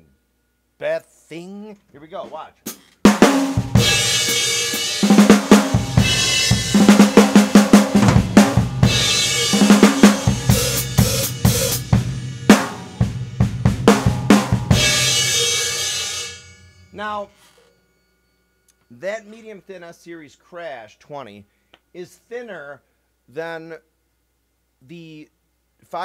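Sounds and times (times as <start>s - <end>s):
rock drum groove: 2.2s - 16.6s
crash cymbal hits: 3.3s - 13.4s, 14.0s - 17.1s.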